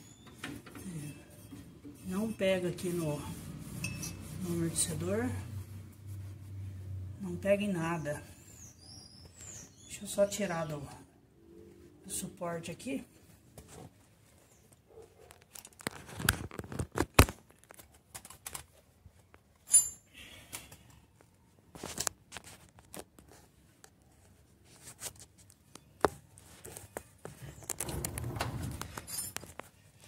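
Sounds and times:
rustling and scraping of phone: 0.0 - 6.9, 13.1 - 19.6, 20.8 - 30.0.

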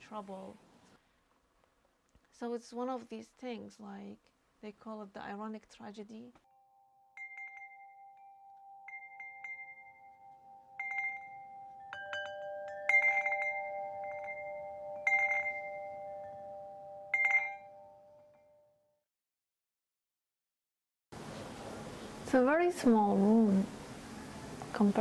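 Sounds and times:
metal chimes ringing: 6.5 - 18.7.

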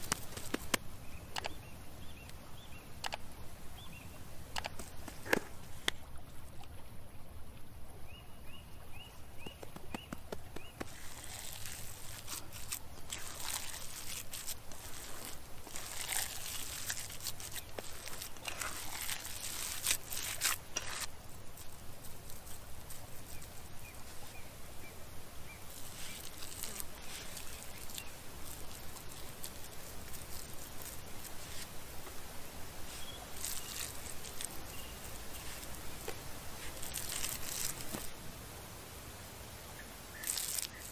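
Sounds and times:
hands squishing minced meat: 9.6 - 21.1.

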